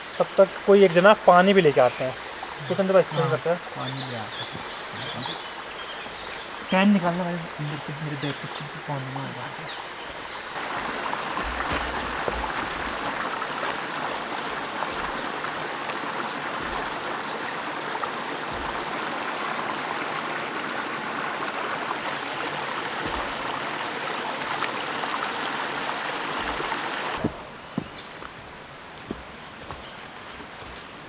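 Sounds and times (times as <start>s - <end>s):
stream running over rocks: 0.0s - 31.0s.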